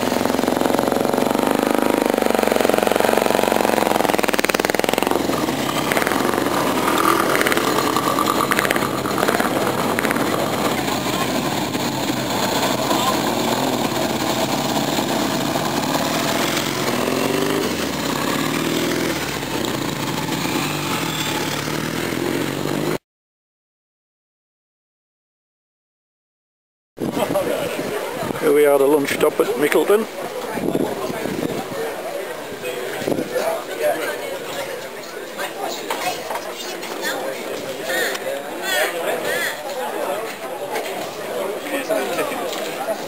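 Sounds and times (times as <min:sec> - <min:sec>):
motorcycle engines running: 0:00.0 - 0:23.0
people talking: 0:05.9 - 0:14.1, 0:27.0 - 0:43.0.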